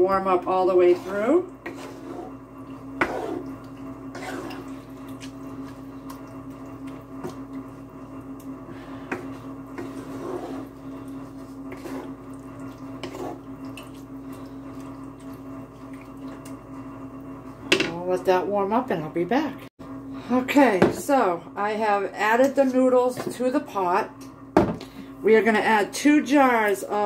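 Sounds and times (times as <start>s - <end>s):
steady low hum: 0.0s - 27.0s
wooden spoon stirring thick sauce: 0.2s - 16.6s.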